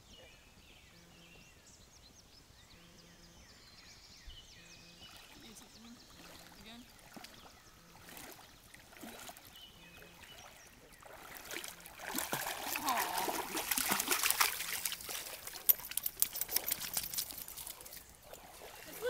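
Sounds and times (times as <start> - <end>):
dog splashing through water: 6.1 - 19.0.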